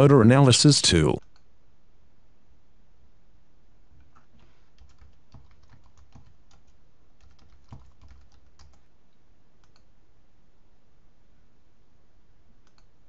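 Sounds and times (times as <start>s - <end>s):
typing on computer keyboard: 4.7s - 8.9s.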